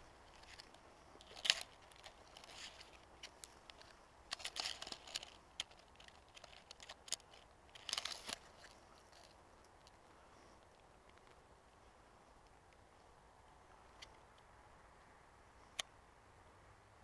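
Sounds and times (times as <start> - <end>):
dry leaves rustling: 0.0 - 10.0
pine twigs crackling: 0.0 - 14.5.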